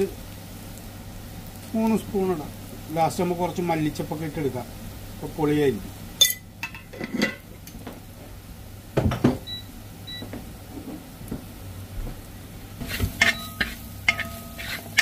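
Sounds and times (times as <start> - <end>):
onions frying: 0.0 - 15.0
metal spoon scraping a pan: 12.8 - 15.0.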